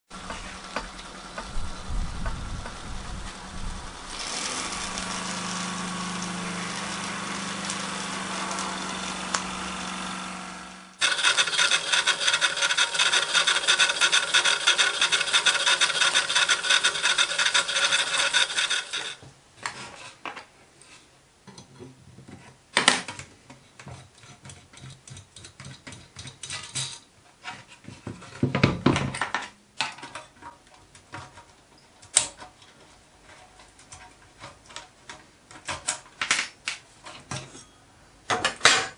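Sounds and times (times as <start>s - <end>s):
model steam engine running: 3.9s - 19.2s.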